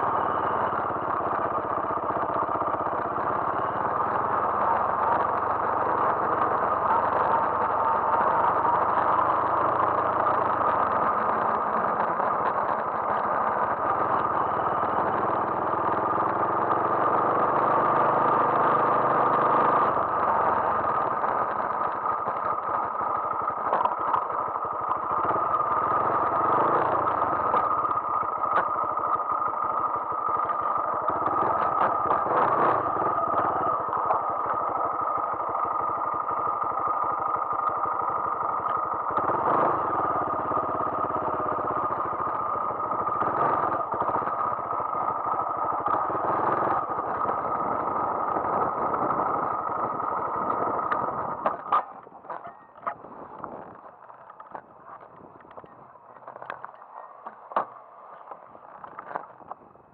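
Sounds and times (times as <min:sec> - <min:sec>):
motorcycle engine running: 0:00.0 - 0:59.9
knocks and rattles over rough ground: 0:18.7 - 0:59.9.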